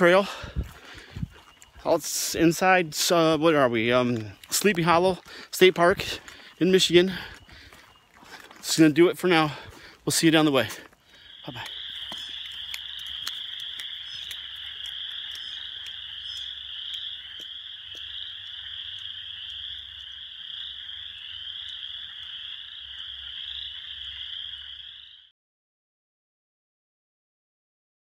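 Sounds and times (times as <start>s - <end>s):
chorus of frogs trilling: 0.0s - 25.3s
low wind rumble: 0.4s - 1.4s.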